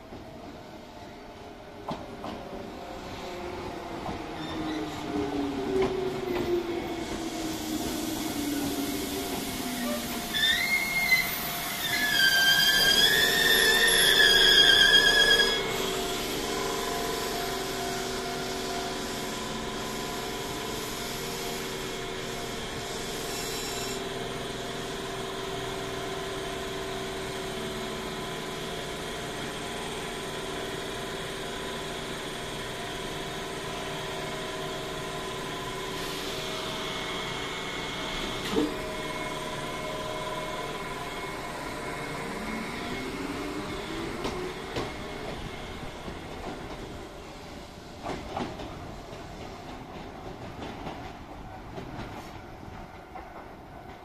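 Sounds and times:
train equipment humming: 0:00.0 - 0:23.0, 0:31.9 - 0:54.0
train motor rising whine: 0:04.0 - 0:18.9, 0:34.8 - 0:47.0.

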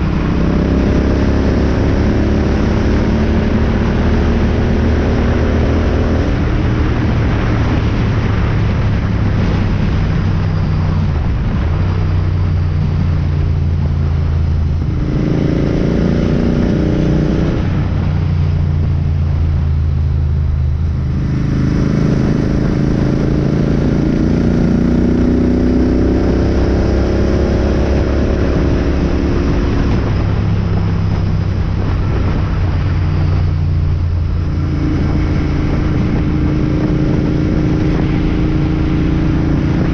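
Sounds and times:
motorcycle engine revving: 0:00.0 - 0:39.9
wind rush: 0:00.0 - 0:39.9.

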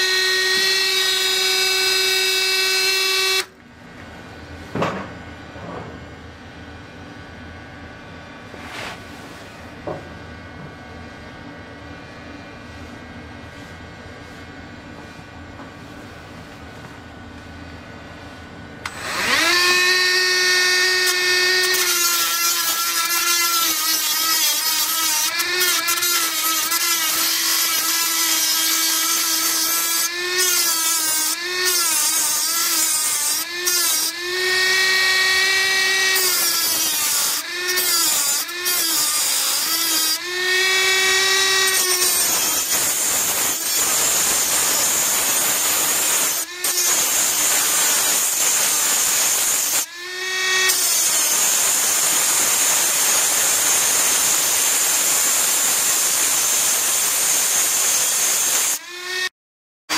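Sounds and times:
grinder whining: 0:00.0 - 0:03.6, 0:18.8 - 0:59.3.

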